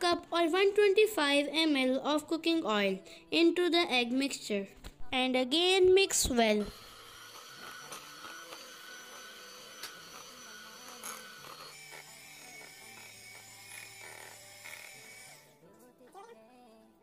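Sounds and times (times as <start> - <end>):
electric hand mixer motor whine: 6.6 - 15.6.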